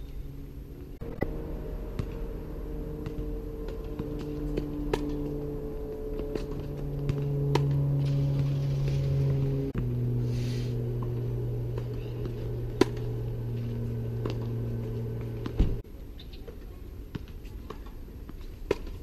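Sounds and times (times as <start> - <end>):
steady low hum: 0.0 - 15.9
tennis ball hitting racket: 1.1 - 10.2, 10.8 - 15.8.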